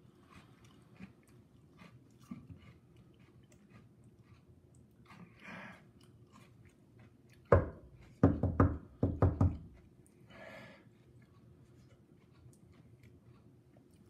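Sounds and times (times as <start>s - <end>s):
sharp knocks: 7.6s - 9.7s.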